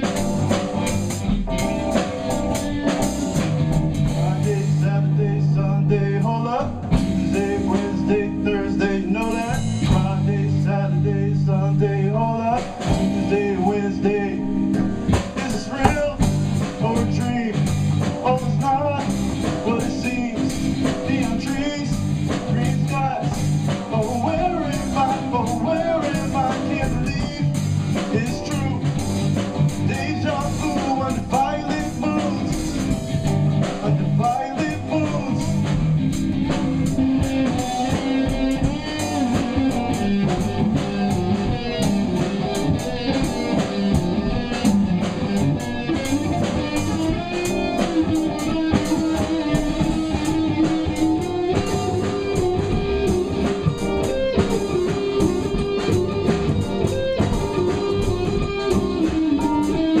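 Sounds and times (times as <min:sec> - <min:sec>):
bass guitar: 0:00.0 - 1:00.0
drum kit: 0:00.0 - 1:00.0
electric guitar solo: 0:12.8 - 1:00.0.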